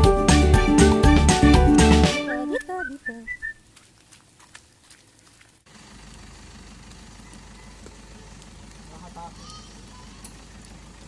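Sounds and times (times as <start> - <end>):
footsteps on wet gravel: 2.2 - 11.0.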